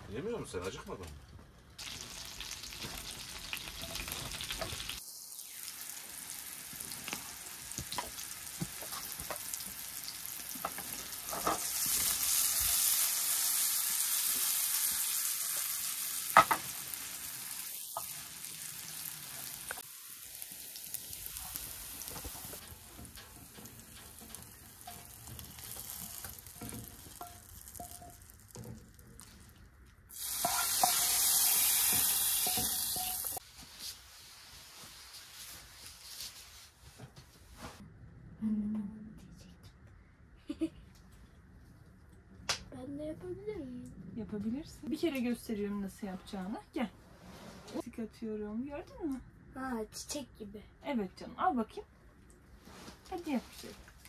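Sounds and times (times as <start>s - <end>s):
meatballs sizzling in oil: 1.8s - 29.4s, 30.1s - 36.6s
wooden spoon stirring and scraping: 21.4s - 29.5s, 30.2s - 33.4s
hot fat poured into soup: 26.3s - 32.4s.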